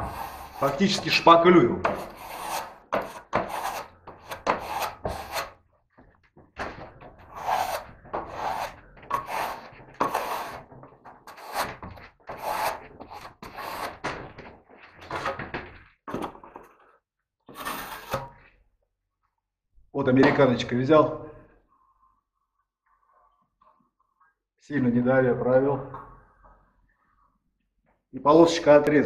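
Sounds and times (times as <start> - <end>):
steel trowel scraping wet canvas: 0.0 - 1.3.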